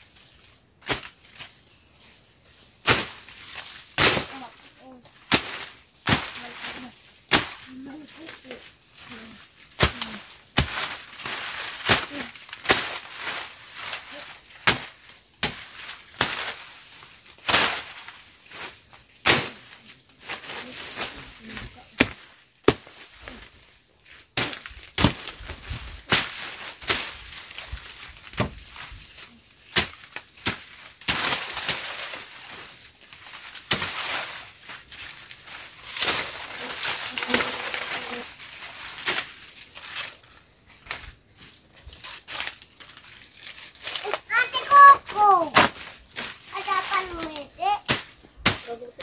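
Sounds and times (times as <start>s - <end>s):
rustle of cut vegetation: 0.0s - 49.0s
machete slashing through brush: 2.8s - 4.5s, 5.2s - 7.8s, 9.0s - 23.4s, 24.4s - 28.9s, 29.6s - 40.1s, 45.5s - 49.0s.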